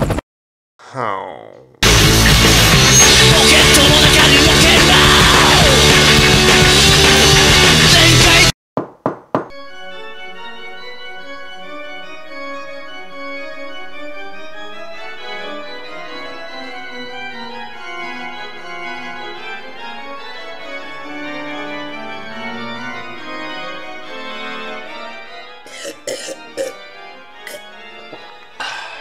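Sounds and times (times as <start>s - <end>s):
organ playing slow chords: 9.6s - 29.0s.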